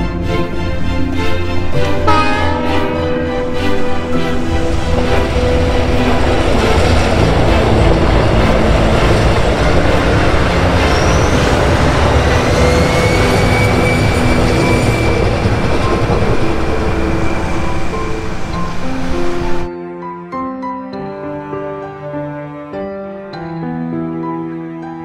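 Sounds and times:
train wheels rumbling on rail: 0.4 - 19.7
high-pitched wheel squeal: 10.5 - 17.9.

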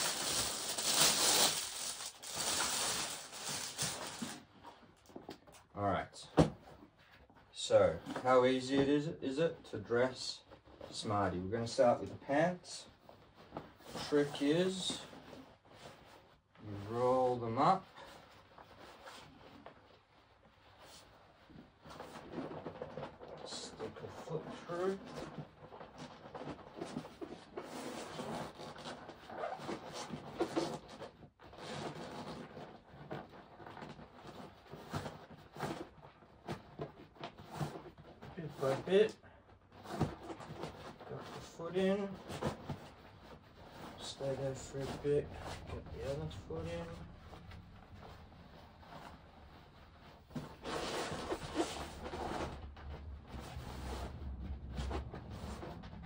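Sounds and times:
fabric pants rustling and rubbing: 0.0 - 4.5, 39.7 - 56.0.

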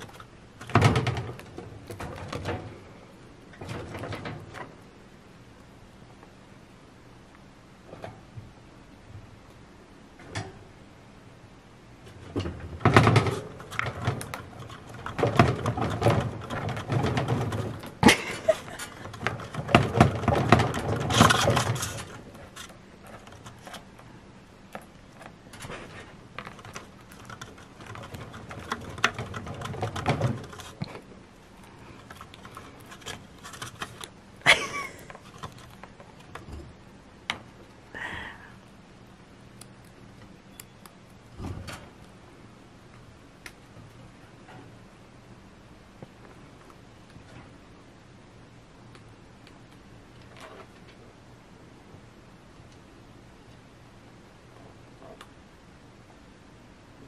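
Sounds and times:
chinchillas scratching and rustling: 0.0 - 2.9, 12.0 - 36.5.

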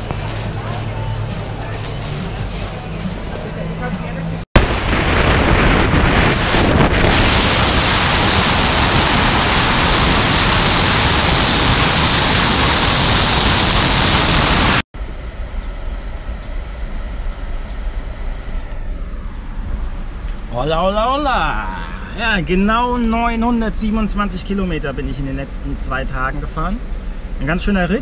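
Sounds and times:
van engine drone: 0.0 - 4.4, 7.4 - 28.0
road noise: 0.0 - 4.8, 5.6 - 28.0
wind roaring over microphone: 4.6 - 16.1.

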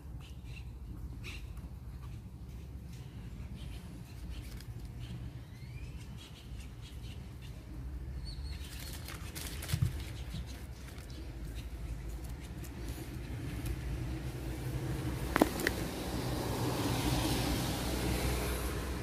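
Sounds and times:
plastic packets crinkling: 8.6 - 11.1.

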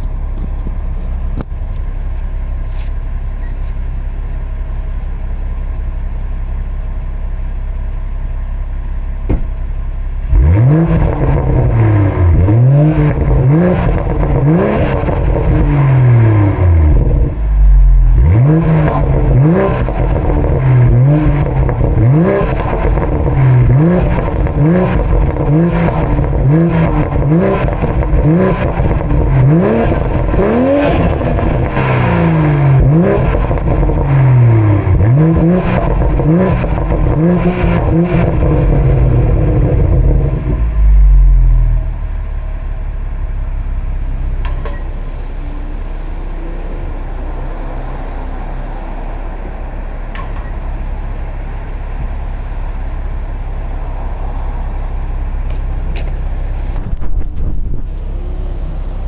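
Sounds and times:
car engine idling and revving: 0.0 - 59.0
exhaust crackles and burbles: 8.4 - 59.0.

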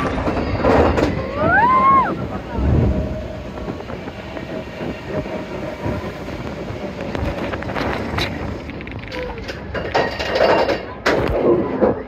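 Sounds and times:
roller coaster wheels rumbling: 0.0 - 12.0.

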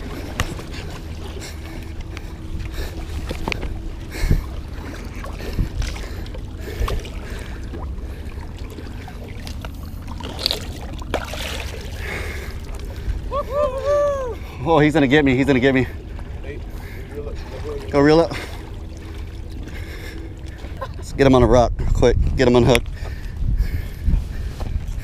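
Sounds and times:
wind rumbling on microphone: 0.0 - 11.1, 19.5 - 25.0
water sloshing against rocks: 0.0 - 13.4.

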